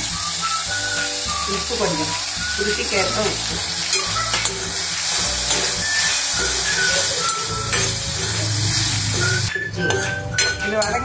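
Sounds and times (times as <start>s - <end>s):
vegetables sizzling in a pan: 0.0s - 11.0s
steel ladle stirring and scraping: 2.7s - 11.0s.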